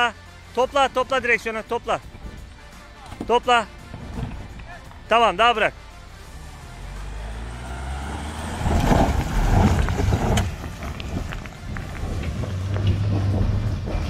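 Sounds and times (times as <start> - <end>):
diesel engine revving: 3.7 - 14.0
tyres crunching over stones: 6.8 - 14.0
gravel clicks being thrown: 8.6 - 13.6.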